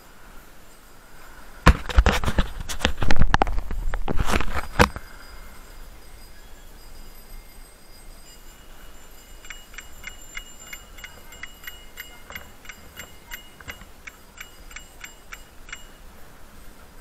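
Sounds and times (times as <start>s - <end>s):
bicycle ticking as it rolls: 4.7s - 17.0s.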